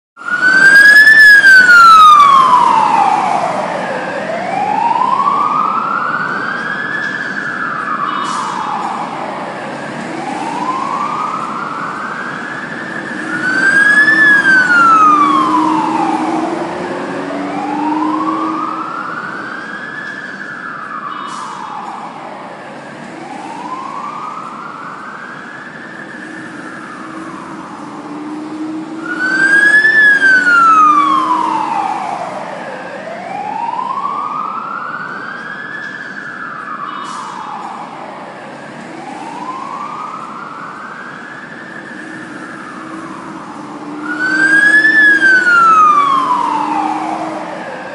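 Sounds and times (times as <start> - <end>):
fire truck siren wailing: 0.2 - 47.9.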